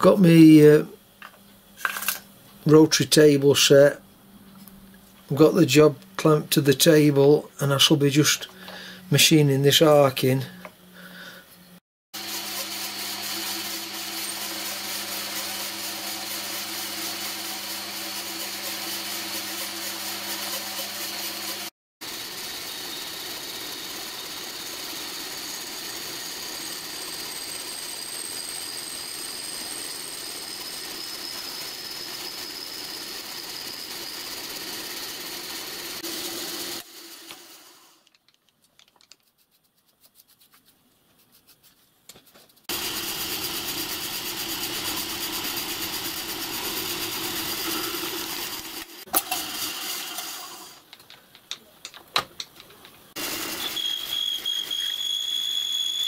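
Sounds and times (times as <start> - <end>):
milling machine cutting aluminium: 42.7 - 50.7.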